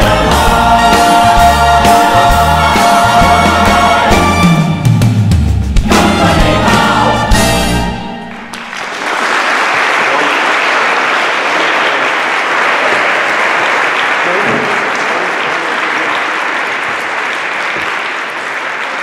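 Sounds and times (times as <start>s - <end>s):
show tune chorus with orchestra: 0.0s - 8.6s
audience applauding: 8.3s - 19.0s.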